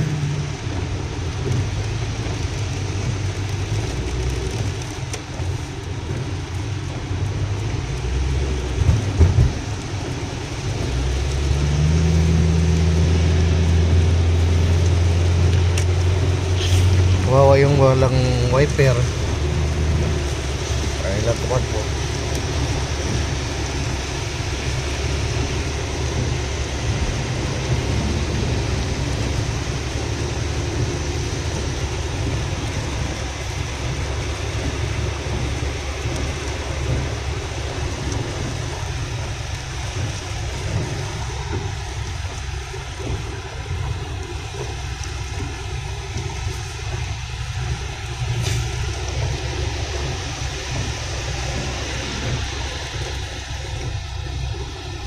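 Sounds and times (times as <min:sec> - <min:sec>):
engine and tyres rumbling: 0:00.0 - 0:55.0
rain on car: 0:00.0 - 0:55.0
tyres hissing on wet road: 0:00.0 - 0:55.0.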